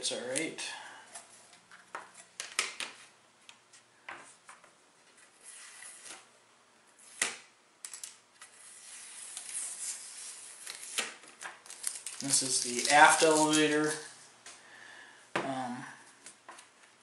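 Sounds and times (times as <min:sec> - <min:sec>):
tape peeling rustle: 0:05.0 - 0:06.3, 0:07.0 - 0:14.3.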